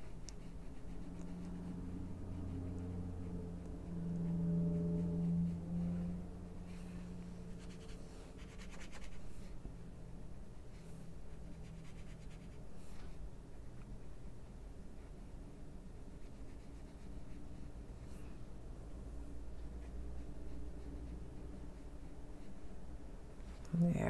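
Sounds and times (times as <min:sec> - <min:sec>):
low steady hum: 0:00.0 - 0:24.0
brush rubbing on paper: 0:06.7 - 0:09.6, 0:10.6 - 0:13.2.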